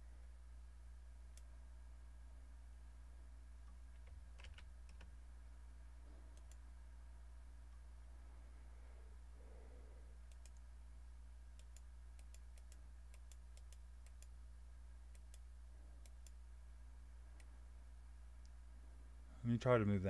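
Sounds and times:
low electrical hum: 0.0s - 20.0s
faint mouse clicks: 1.3s - 1.5s, 6.3s - 6.6s, 10.2s - 10.7s, 11.5s - 14.4s, 15.1s - 16.4s.

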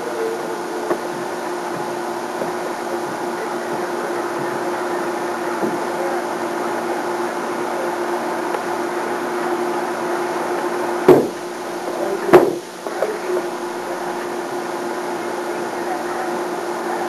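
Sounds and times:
steady hum: 0.0s - 17.0s
loud knocks: 11.1s - 11.4s, 12.3s - 12.6s.

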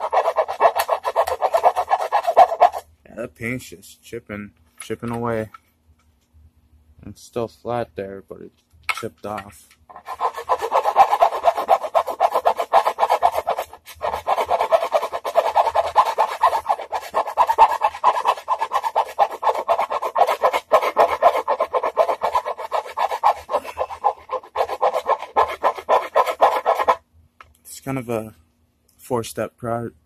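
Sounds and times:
hand tool rasping wood: 0.0s - 2.8s, 9.9s - 27.0s.

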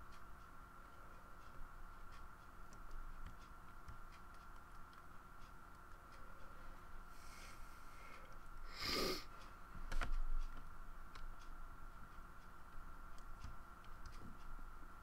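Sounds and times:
faint high hum: 0.0s - 15.0s.

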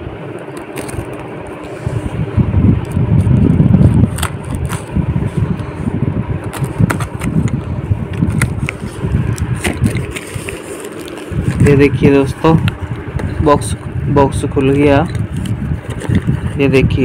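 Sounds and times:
low rumbling: 0.0s - 17.0s
cardboard box being torn open: 0.5s - 1.2s, 3.8s - 4.9s, 9.6s - 11.7s.

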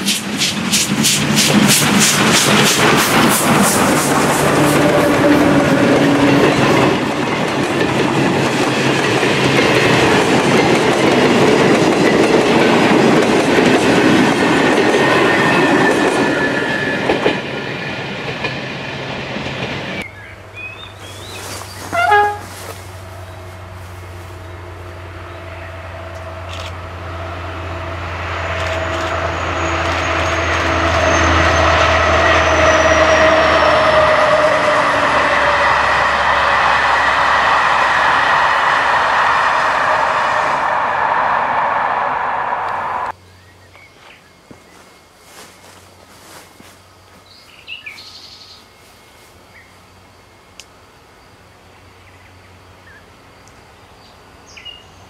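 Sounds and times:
train wheels clattering over rails: 0.0s - 20.0s
diesel train approaching: 0.0s - 43.6s, 44.2s - 55.0s.

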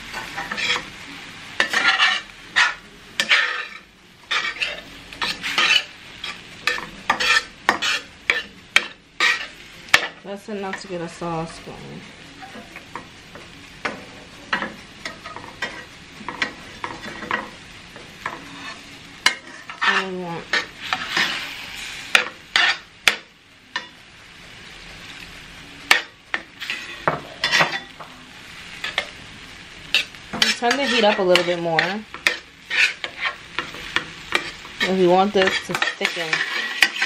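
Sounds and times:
metal spatula scraping a frying pan: 0.0s - 1.0s, 1.6s - 10.9s, 14.5s - 17.6s, 18.2s - 24.0s, 25.9s - 28.0s, 29.8s - 37.0s
meat sizzling: 0.0s - 37.0s.

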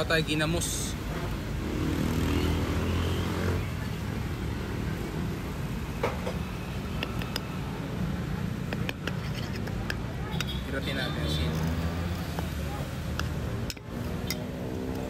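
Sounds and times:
metal spoon clicking on dishes: 8.7s - 10.5s.

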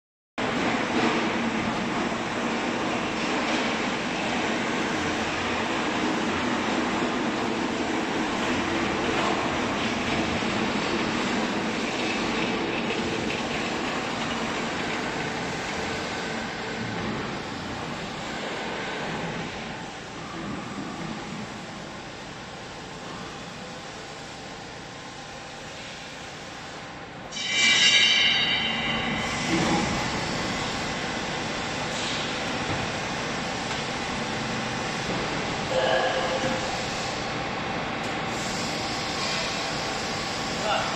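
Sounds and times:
hydraulic motor and pump running: 0.4s - 40.9s
high-pitched squealing whine: 27.3s - 32.3s.

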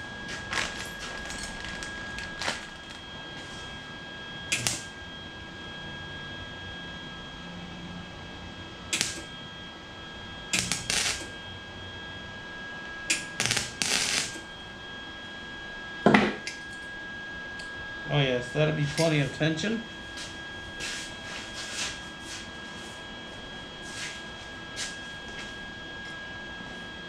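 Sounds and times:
welder crackling bursts: 0.0s - 3.0s, 4.5s - 4.9s, 8.9s - 9.3s, 10.6s - 11.3s, 13.1s - 14.4s.

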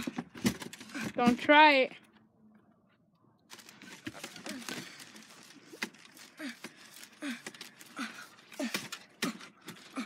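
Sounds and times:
rustling: 3.5s - 8.7s
boy grunting with effort: 6.4s - 10.0s.

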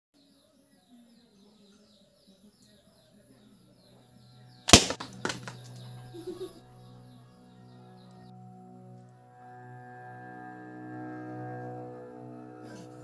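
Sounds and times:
balloon bursting: 4.7s - 5.6s
weaker crack: 4.7s - 6.5s.

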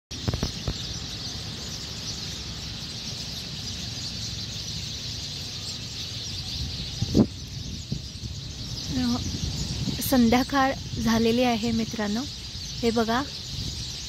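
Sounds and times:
flock of sparrows chirping: 0.1s - 14.0s.

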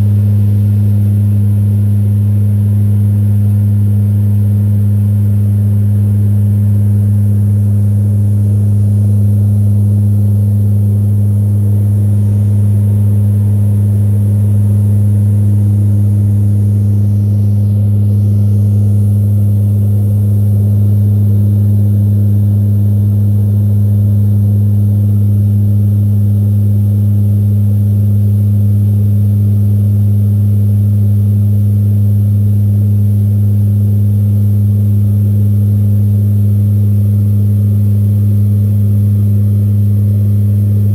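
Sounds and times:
turboprop engines droning: 0.0s - 27.9s.

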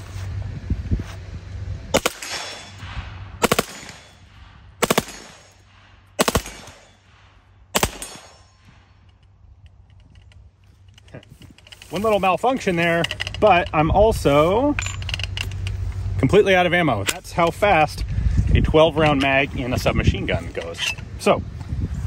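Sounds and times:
submachine gun firing bursts: 2.0s - 2.7s, 3.4s - 5.6s, 6.2s - 7.0s, 7.7s - 8.3s.

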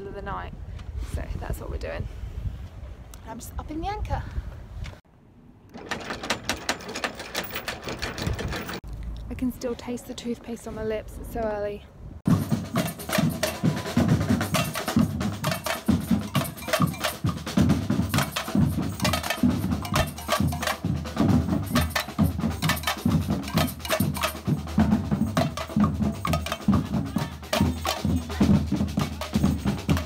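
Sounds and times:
bass drums: 12.3s - 30.0s
snare drums: 12.3s - 30.0s.

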